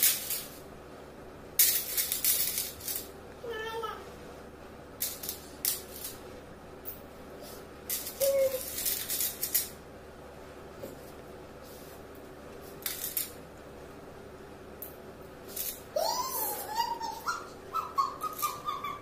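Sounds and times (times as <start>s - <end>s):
coins clinking into bowls: 1.6s - 3.1s, 7.9s - 9.7s, 12.8s - 13.4s.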